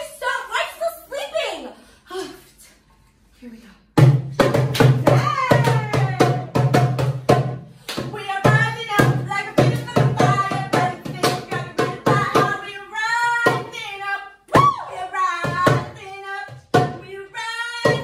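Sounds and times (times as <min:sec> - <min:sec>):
hand drum beating: 0:04.0 - 0:12.6
woman singing loudly: 0:05.1 - 0:06.5.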